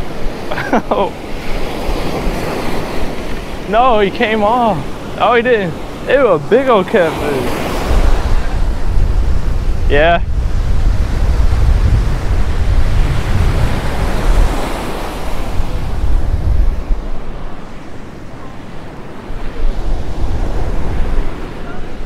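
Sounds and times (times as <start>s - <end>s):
surf breaking on beach: 0.0s - 22.0s
wind buffeting microphone: 0.0s - 22.0s.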